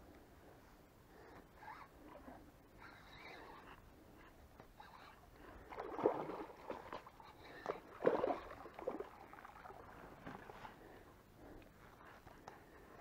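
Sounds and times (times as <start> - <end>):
fish splashing in shallow water: 5.6 - 10.0.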